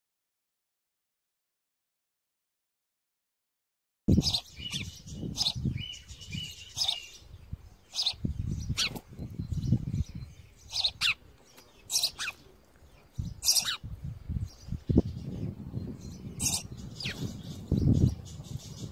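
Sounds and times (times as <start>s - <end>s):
sparrows chirping: 4.1s - 18.9s.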